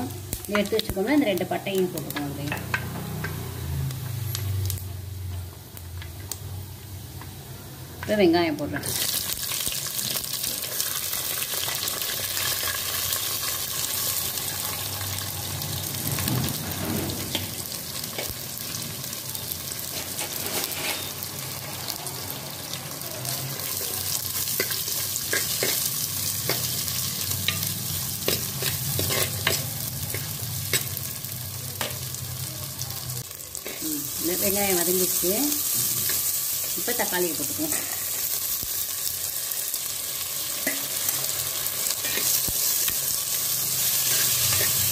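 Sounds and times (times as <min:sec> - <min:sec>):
shallots sizzling in hot oil: 0:00.0 - 0:44.9
spatula scraping pot: 0:19.9 - 0:21.2.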